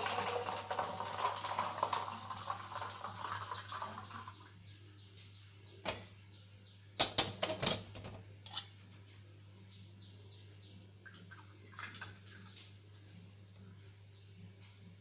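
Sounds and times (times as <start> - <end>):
milk pouring into a jar: 0.0 - 4.5, 11.0 - 12.6.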